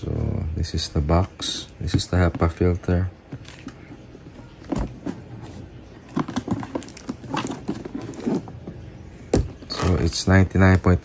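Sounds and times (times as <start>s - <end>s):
cardboard box handled: 4.5s - 8.7s.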